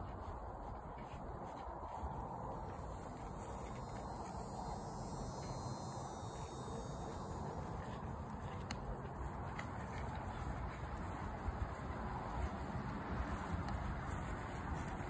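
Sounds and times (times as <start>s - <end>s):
outdoor background noise: 0.0s - 15.0s
faint insect buzzing: 3.1s - 8.6s.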